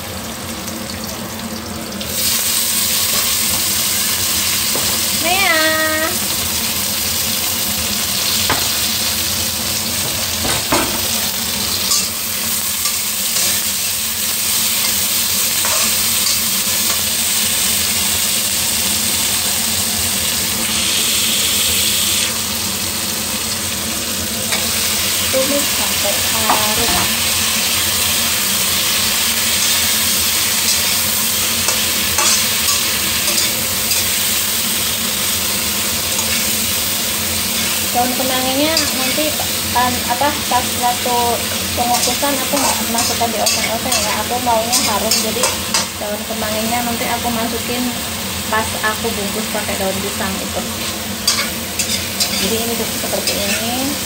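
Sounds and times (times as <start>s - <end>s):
vegetables sizzling in oil: 0.0s - 54.0s
metal spatula scraping pan: 31.7s - 34.1s.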